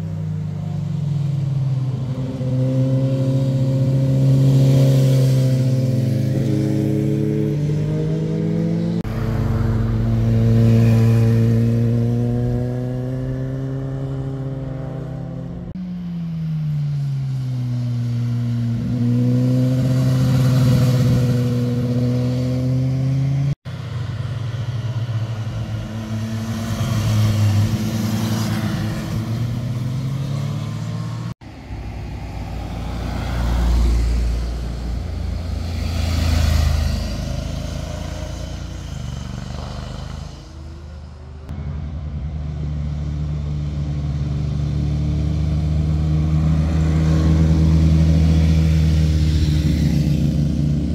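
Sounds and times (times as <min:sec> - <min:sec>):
motorcycles passing: 0:00.0 - 0:50.9.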